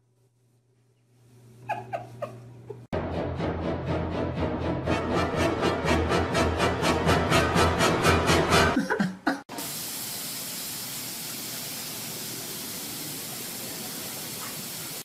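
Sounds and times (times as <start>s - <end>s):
music: 3.0s - 8.8s
steady hiss: 9.5s - 15.0s.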